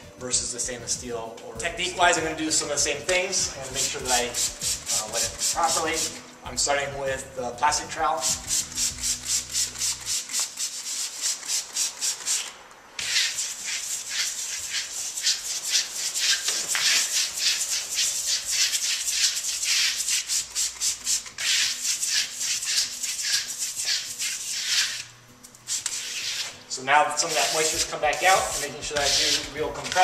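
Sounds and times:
spray bottle hissing squirts: 16.2 - 26.6.

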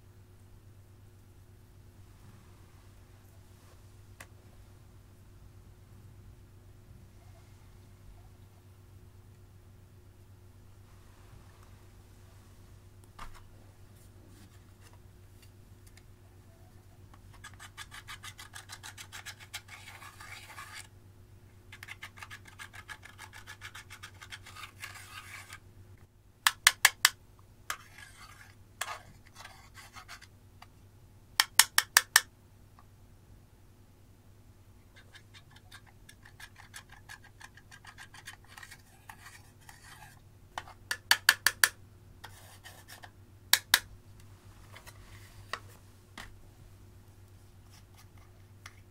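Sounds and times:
tool scratching eyeshadow: 17.3 - 20.9, 21.8 - 25.6.

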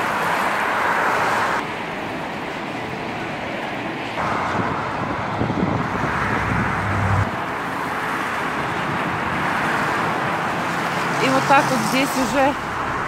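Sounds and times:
road traffic noise: 0.0 - 13.0
heavy low rumble: 4.2 - 7.6.

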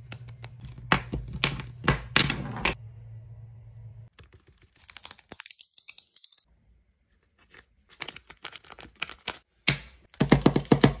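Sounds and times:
paper crinkling and rustling: 7.2 - 9.5.

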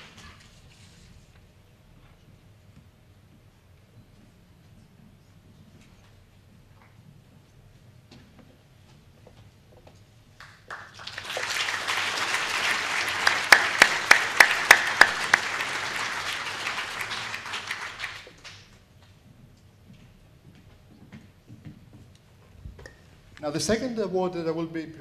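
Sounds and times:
audience applauding: 10.4 - 18.7
sharp claps close by: 10.4 - 18.8.

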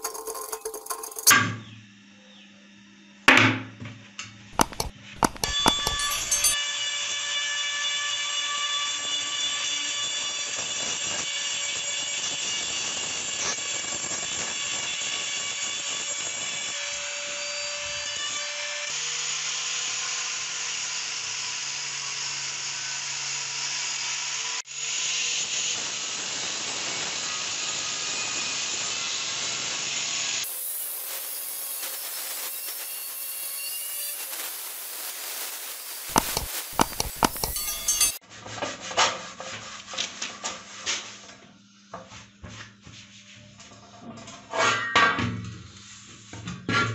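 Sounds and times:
angle grinder wire brush scrubbing: 0.0 - 1.3, 4.6 - 6.6, 33.8 - 38.2
rotary tool grinding metal: 0.0 - 1.3, 4.6 - 6.6, 30.4 - 38.2
sharp knocks: 4.6 - 6.6, 36.1 - 38.2.

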